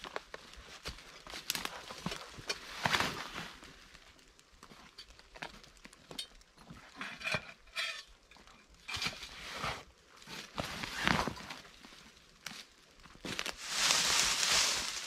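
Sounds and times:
rustling in dry leaf litter: 10.5 - 15.0
branch dragged through bracken: 13.4 - 15.0.

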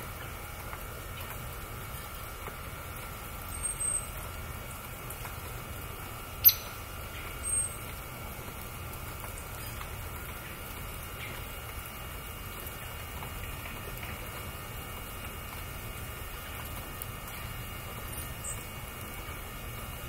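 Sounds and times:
songbird call notes: 3.5 - 4.2, 6.4 - 7.9.

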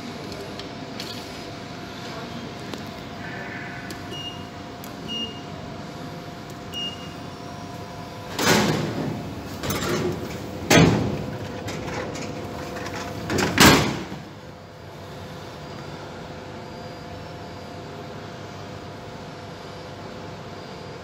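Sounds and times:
vending machine hum: 0.0 - 21.0
short electronic beeps: 3.2 - 5.6, 6.7 - 7.2
vending machine clunks and rattles: 8.3 - 14.4.

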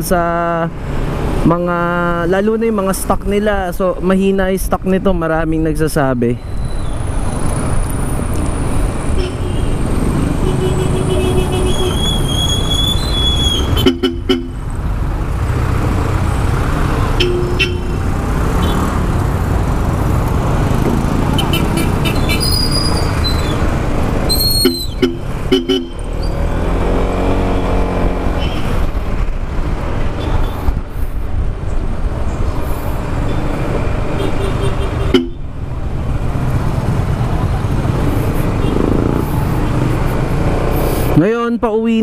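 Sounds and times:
street traffic: 0.0 - 42.0
scooter engine running: 37.0 - 40.4.

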